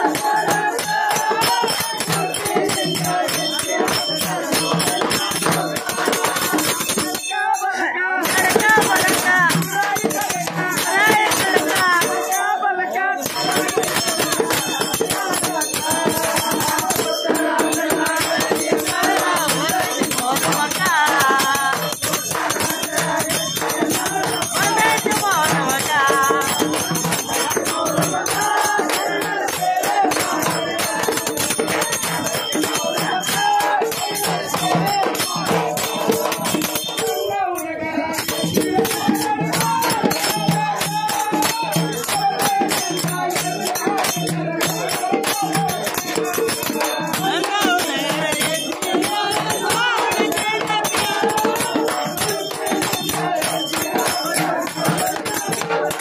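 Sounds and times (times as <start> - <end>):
rapid rattling percussion: 0.0 - 56.0.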